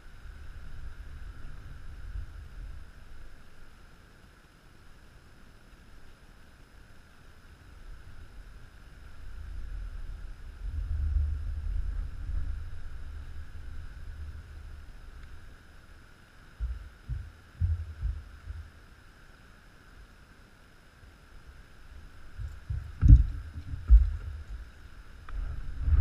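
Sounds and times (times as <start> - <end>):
wind buffeting microphone: 9.3 - 15.5, 22.3 - 26.0
short low thumps: 16.6 - 18.8, 22.4 - 24.7.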